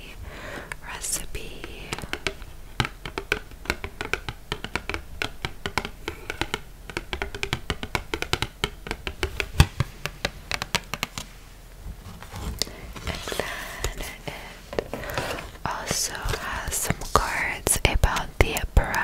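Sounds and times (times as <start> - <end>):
fingernails tapping on card: 1.4 - 11.3.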